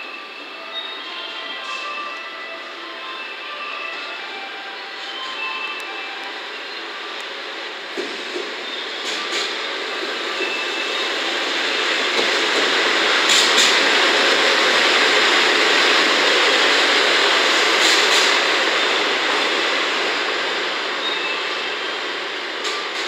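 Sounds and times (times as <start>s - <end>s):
train wheel clacks: 12.0s - 14.8s, 17.5s - 18.5s.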